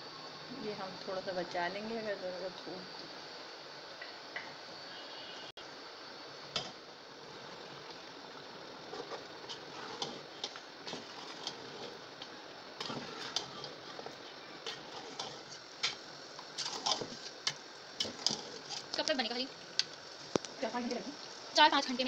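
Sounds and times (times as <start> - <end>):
steady hiss: 0.0 - 22.0
metal ladle scraping a pot: 8.9 - 12.0, 12.8 - 14.0, 14.6 - 16.0, 16.6 - 17.3, 18.0 - 19.0.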